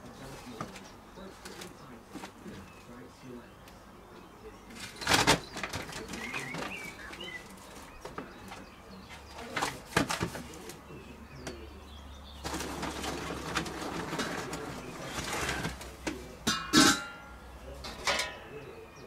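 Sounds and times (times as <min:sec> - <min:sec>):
birds calling: 0:00.0 - 0:19.0
sharp clicks and clatters: 0:04.8 - 0:06.9
bag rustling: 0:12.4 - 0:16.2.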